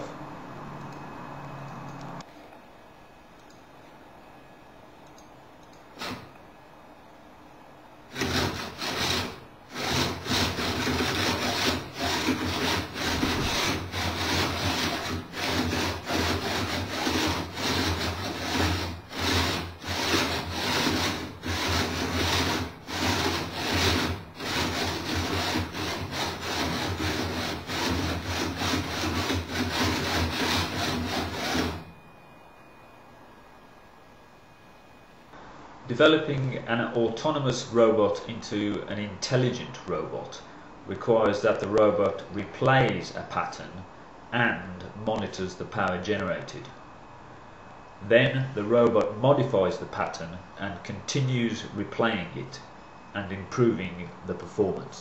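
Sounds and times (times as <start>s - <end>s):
low motor hum: 0.0s - 2.3s, 8.1s - 35.3s
winches rasping whirr: 5.7s - 6.4s, 8.1s - 33.0s.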